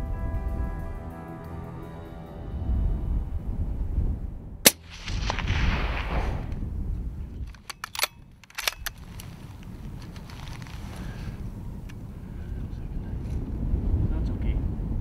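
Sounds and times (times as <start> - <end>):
rifle shot: 4.6 - 6.7
rifle bolt clicking: 7.5 - 10.6.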